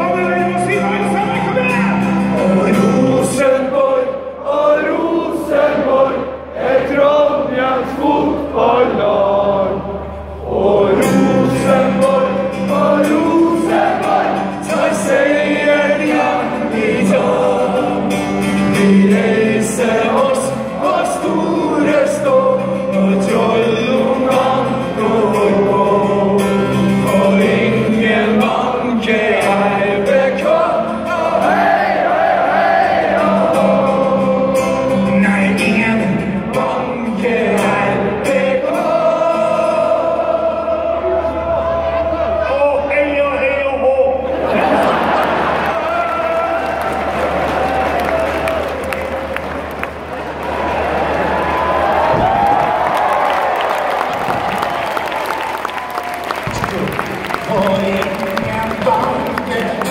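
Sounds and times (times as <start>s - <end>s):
choir singing: 1.6s - 42.6s, 44.2s - 45.9s.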